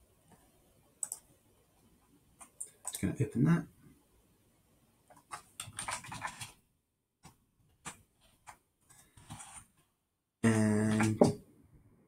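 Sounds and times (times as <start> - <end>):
computer mouse clicks: 1.0 - 1.3, 2.4 - 3.1.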